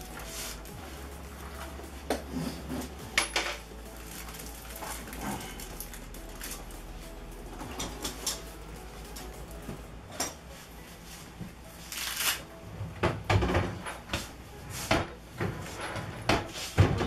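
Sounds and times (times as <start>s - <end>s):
low steady hum: 0.0s - 13.5s.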